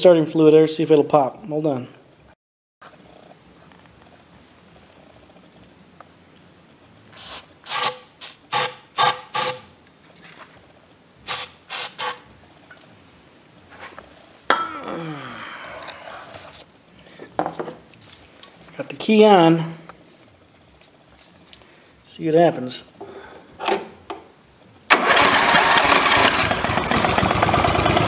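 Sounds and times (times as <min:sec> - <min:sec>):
scraping rustle: 0:10.0 - 0:10.8, 0:13.6 - 0:14.3
aerosol spray hissing: 0:11.3 - 0:12.2.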